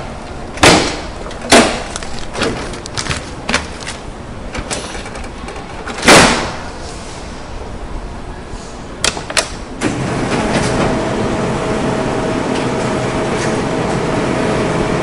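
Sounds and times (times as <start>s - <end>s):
faint constant hum: 0.0s - 15.0s
printer running: 9.8s - 15.0s.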